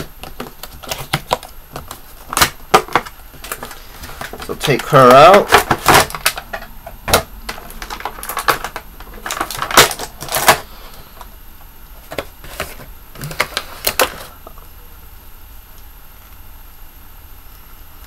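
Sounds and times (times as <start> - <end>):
packaging clicks and crinkles: 0.0 - 11.3, 11.9 - 14.7.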